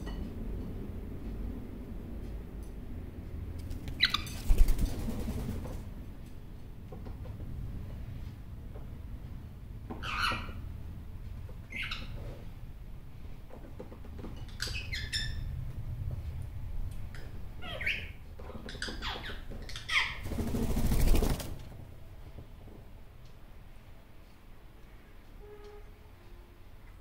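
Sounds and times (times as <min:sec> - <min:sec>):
bird wingbeats: 0:03.6 - 0:05.9, 0:20.1 - 0:21.8.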